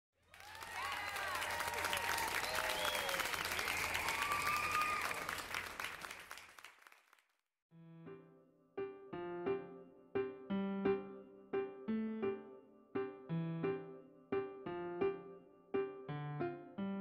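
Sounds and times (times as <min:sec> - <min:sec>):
crowd applauding and cheering: 0:00.2 - 0:07.3
keyboard tune: 0:07.8 - 0:17.0.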